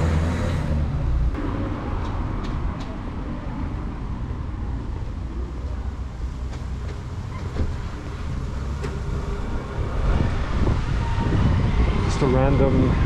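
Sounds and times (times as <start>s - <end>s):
distant traffic: 0.0s - 13.0s
wind rumble on microphone: 9.0s - 13.0s.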